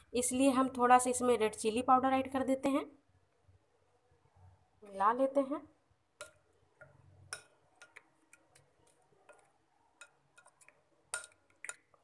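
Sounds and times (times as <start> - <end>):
spoon stirring in glass bowl: 6.2 - 12.0.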